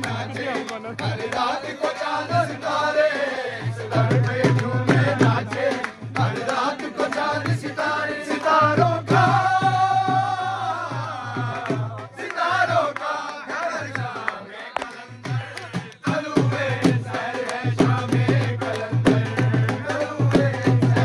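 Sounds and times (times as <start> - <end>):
person singing devotional song: 0.0 - 21.0
hand drum beats: 3.8 - 7.7, 14.8 - 21.0.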